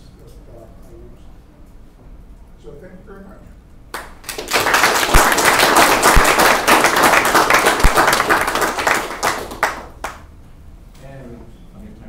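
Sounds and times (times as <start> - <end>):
crowd applauding: 4.0 - 10.2.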